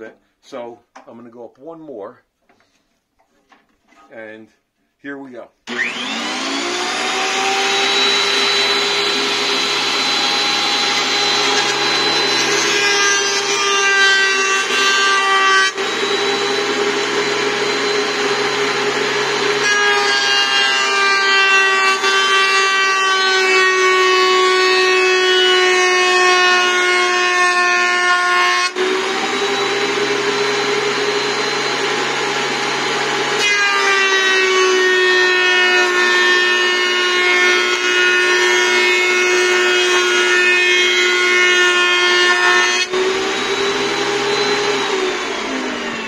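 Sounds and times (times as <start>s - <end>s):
planer motor winding down: 5.7s - 13.6s, 14.3s - 23.0s, 28.8s - 33.4s, 42.9s - 46.0s
thickness planer high whine: 5.7s - 46.0s.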